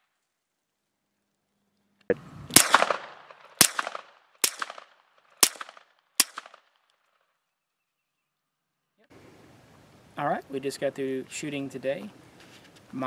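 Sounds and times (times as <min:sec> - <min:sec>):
suppressed pistol shots: 0:02.5 - 0:06.7.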